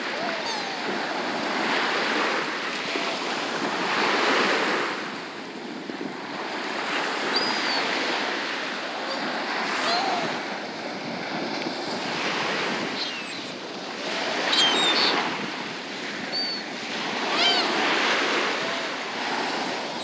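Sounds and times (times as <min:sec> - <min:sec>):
gulls calling: 0:00.0 - 0:02.6, 0:06.6 - 0:20.0
surf washing onto beach: 0:00.0 - 0:20.0.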